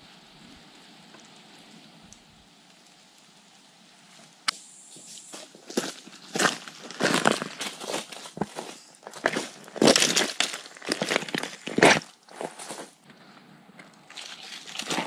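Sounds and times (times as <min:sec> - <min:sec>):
footsteps crunching on leaves and stones: 0:04.8 - 0:15.0.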